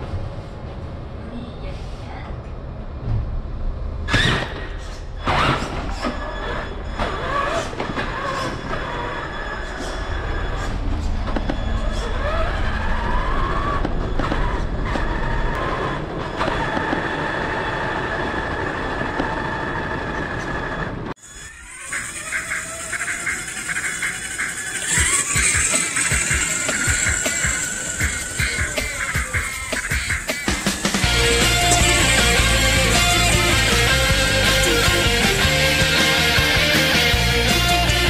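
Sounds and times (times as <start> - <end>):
electric motor and gearbox whine: 5.2 - 38.0.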